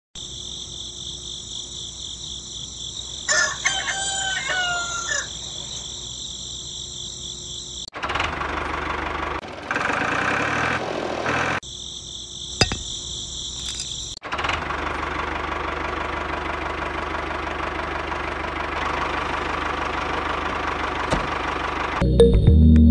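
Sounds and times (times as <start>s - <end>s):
high insect trill: 0.2s - 7.9s, 11.6s - 14.2s
rooster crowing: 3.2s - 5.9s.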